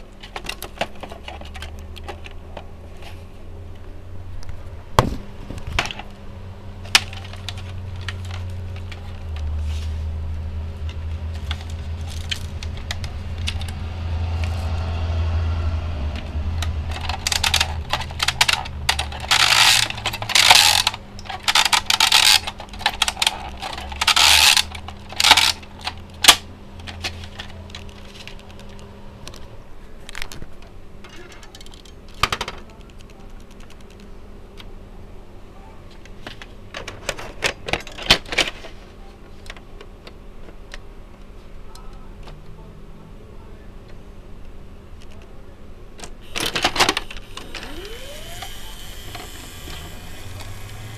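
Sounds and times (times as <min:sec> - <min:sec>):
steady low hum: 0:00.0 - 0:37.8, 0:38.4 - 0:50.9
plastic cassette rattling and clicking: 0:16.8 - 0:28.8.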